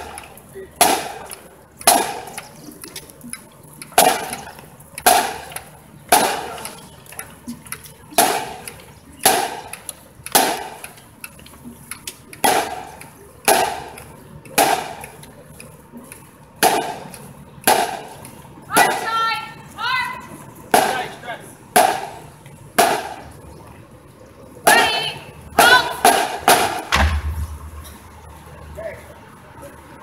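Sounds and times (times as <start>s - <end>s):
marching drum line beat: 0.8s - 2.3s, 21.8s - 22.2s, 22.8s - 23.2s.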